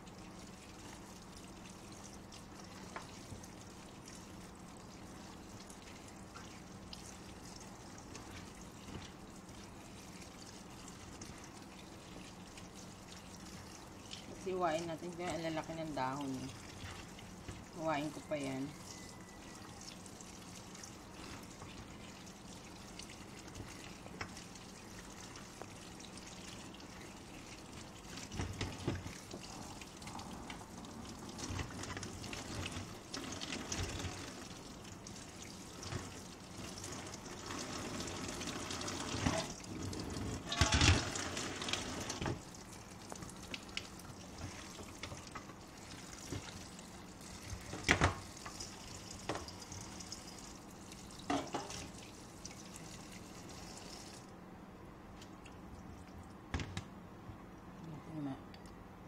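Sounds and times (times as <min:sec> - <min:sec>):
tap water running into colander: 0:00.0 - 0:54.3
splashes and knocks: 0:47.5 - 0:48.3.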